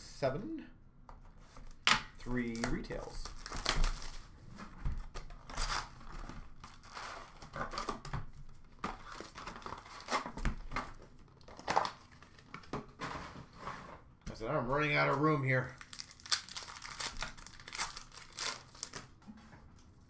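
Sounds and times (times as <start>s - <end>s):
packs crinkling: 2.4s - 4.3s, 5.0s - 12.7s, 15.4s - 19.2s
cardboard boxes tearing: 5.4s - 8.1s, 8.9s - 10.4s.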